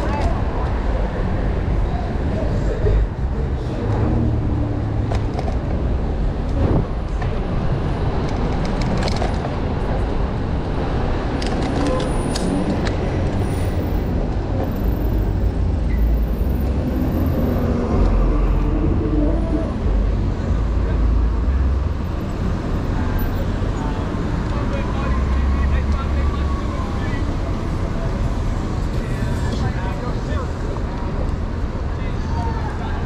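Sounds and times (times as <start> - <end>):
wind rumbling on microphone: 0.0 - 15.8
city street traffic: 0.0 - 33.0.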